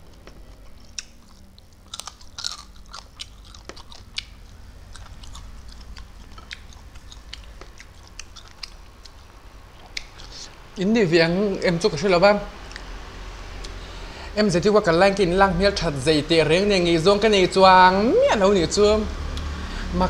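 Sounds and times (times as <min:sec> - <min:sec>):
person chewing food: 0:00.0 - 0:10.6, 0:13.6 - 0:14.1
wet mouth clicks and lip smacks: 0:00.1 - 0:04.3, 0:05.8 - 0:10.4.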